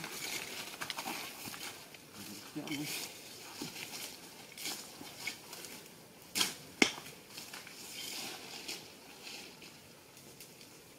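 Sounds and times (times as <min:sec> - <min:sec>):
footsteps in dry leaves: 0:00.0 - 0:05.8.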